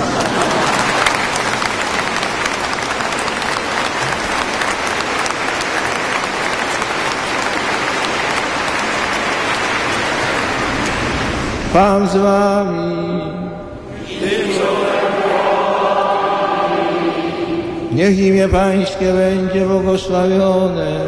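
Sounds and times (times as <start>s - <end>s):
crowd applauding: 0.0s - 11.6s.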